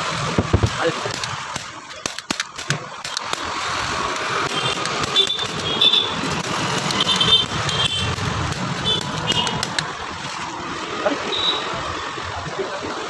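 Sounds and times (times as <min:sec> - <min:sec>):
street traffic: 0:00.0 - 0:13.0
sharp clicks: 0:01.1 - 0:03.5, 0:06.4 - 0:09.9.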